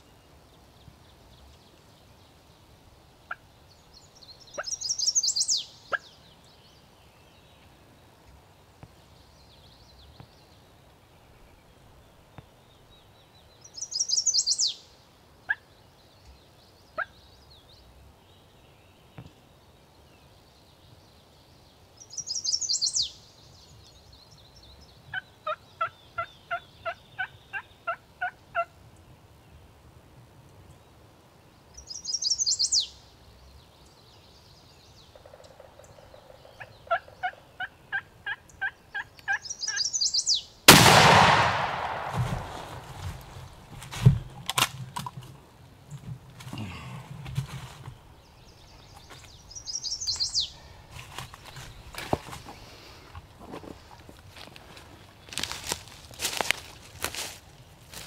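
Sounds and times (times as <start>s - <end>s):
turkey gobbling: 36.2s - 39.8s.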